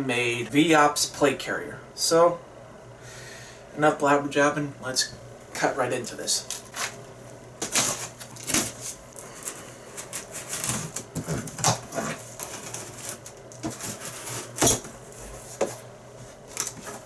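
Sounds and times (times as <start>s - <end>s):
knife slitting packing tape: 7.6s - 14.9s.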